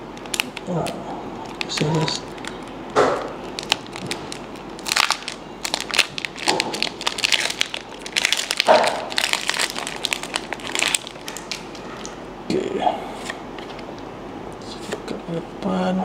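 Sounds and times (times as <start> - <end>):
foil wrapper tearing and crinkling: 0.2 - 12.2.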